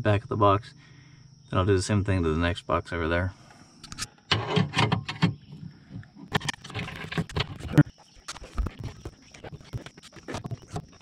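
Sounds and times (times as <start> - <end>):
metal box clattering: 4.3 - 5.4, 6.2 - 9.4.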